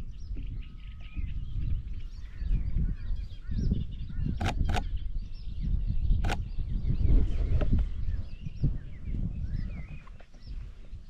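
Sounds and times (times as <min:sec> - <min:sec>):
small birds chirping: 0:00.0 - 0:11.0
camera shutter clicks: 0:04.4 - 0:04.9, 0:06.2 - 0:06.4.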